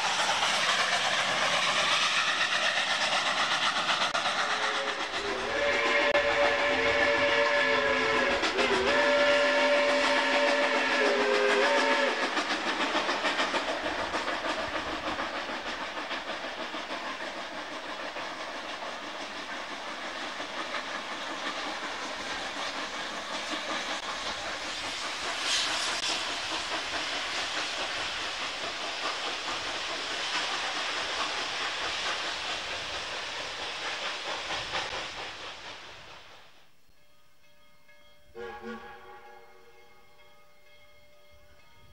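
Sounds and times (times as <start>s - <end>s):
steam locomotive exhaust and hiss: 0.0s - 41.9s
steam locomotive whistle: 4.6s - 12.4s, 38.3s - 40.1s.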